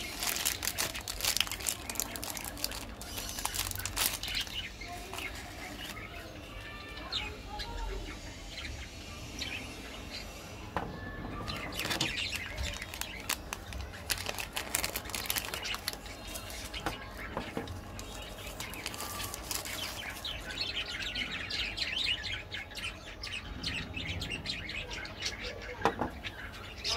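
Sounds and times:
candy wrappers crinkling: 0.0s - 6.3s, 11.5s - 20.6s.

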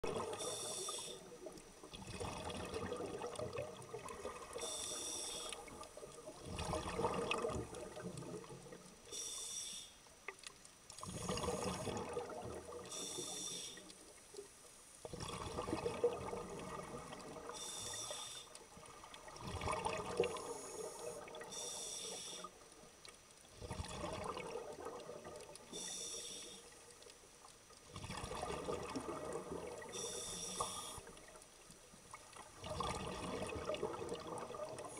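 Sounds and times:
exhaled bubbles gurgling: 0.0s - 9.0s, 11.0s - 13.6s, 15.0s - 21.8s, 23.5s - 26.0s, 27.8s - 31.4s, 32.1s - 34.9s
regulator inhalation hiss: 0.3s - 1.3s, 4.6s - 5.6s, 9.1s - 10.0s, 12.8s - 13.9s, 17.6s - 18.6s, 20.4s - 22.6s, 25.7s - 26.8s, 29.9s - 31.1s.

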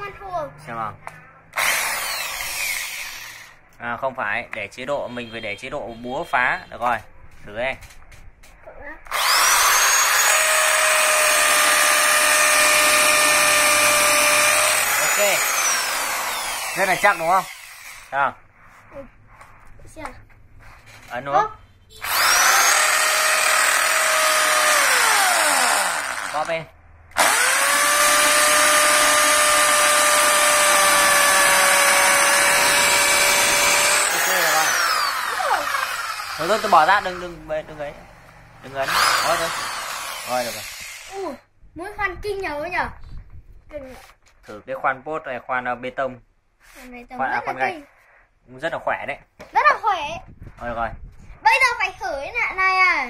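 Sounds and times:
impact drill drilling: 1.6s - 3.6s, 9.1s - 18.2s, 22.0s - 37.4s, 38.8s - 41.2s.

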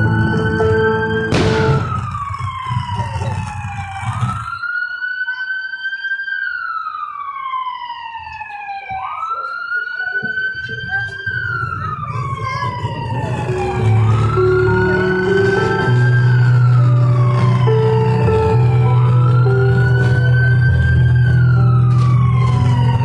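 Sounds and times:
music: 0.0s - 2.0s, 13.4s - 23.0s
vehicle siren wailing: 0.0s - 23.0s.

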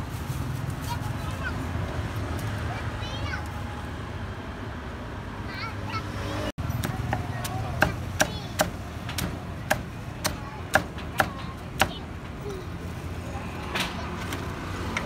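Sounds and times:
low street rumble: 0.0s - 15.0s
cleaver chopping meat on board: 6.8s - 12.0s.

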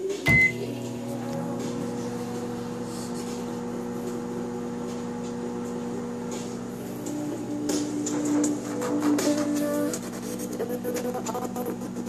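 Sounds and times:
microwave oven humming: 0.0s - 12.0s
microwave keypad beep: 0.3s - 0.7s.

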